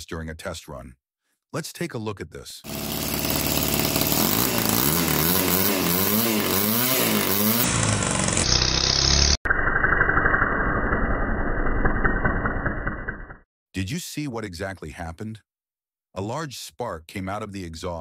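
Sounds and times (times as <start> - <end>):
model engine revving: 2.7 - 9.4.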